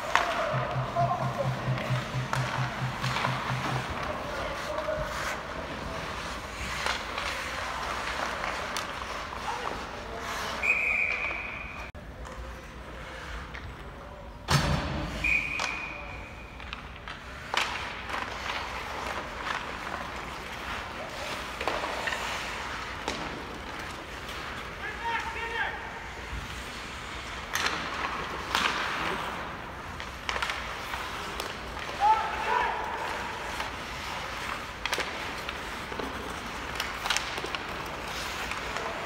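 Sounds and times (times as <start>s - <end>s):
clicks of sticks and puck: 0.0s - 10.0s, 13.3s - 13.9s, 15.2s - 25.5s, 26.2s - 39.0s
referee whistle blasts: 10.6s - 11.8s, 15.2s - 16.0s.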